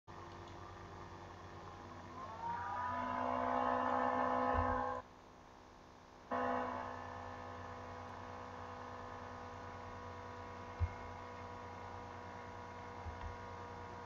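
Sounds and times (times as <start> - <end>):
steady low hum: 0.1 - 14.0
electronic music chord: 2.5 - 5.0, 6.3 - 7.8.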